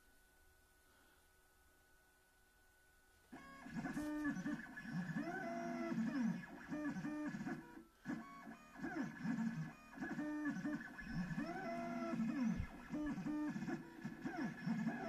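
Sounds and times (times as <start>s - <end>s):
stepper motors whining: 8.4s - 15.0s.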